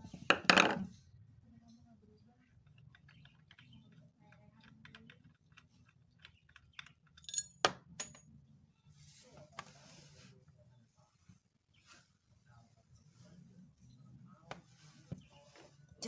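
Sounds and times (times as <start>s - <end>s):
ringing metal clinks: 7.2s - 8.2s.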